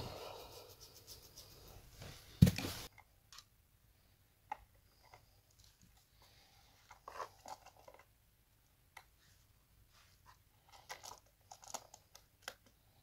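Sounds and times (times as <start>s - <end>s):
thump: 2.4s - 2.8s.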